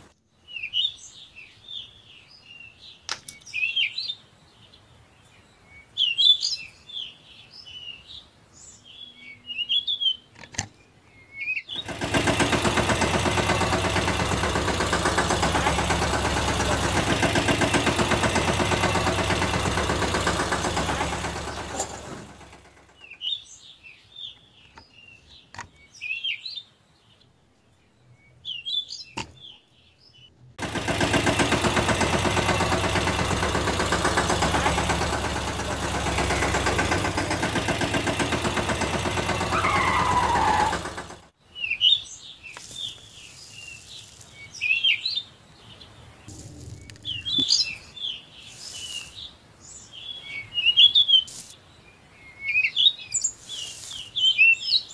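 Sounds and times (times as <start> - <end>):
birds chirping: 0.0 - 54.9
diesel engine running: 11.8 - 23.2, 30.6 - 41.3, 46.3 - 47.9.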